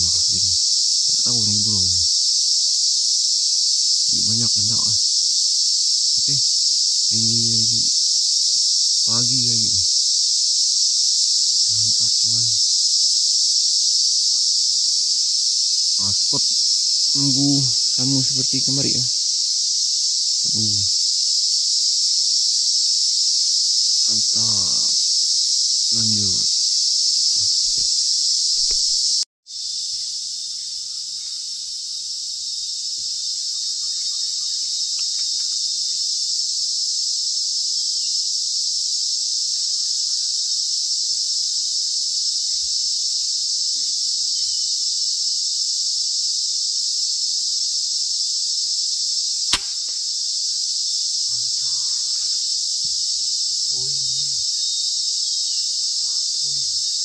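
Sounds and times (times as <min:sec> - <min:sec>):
forest insects chorus: 0:00.0 - 0:57.0
sharp click: 0:28.6 - 0:29.0, 0:49.5 - 0:50.0.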